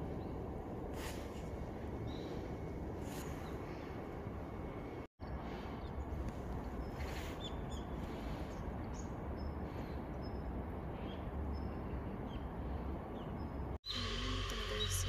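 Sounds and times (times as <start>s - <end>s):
low background rumble: 0.0s - 7.0s
small birds chirping: 1.2s - 15.0s.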